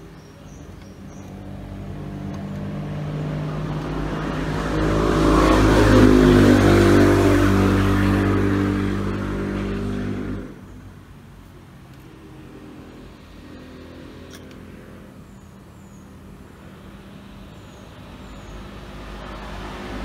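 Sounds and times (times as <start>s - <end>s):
vehicle engine passing by: 1.0s - 10.6s, 12.1s - 15.2s, 17.2s - 20.0s.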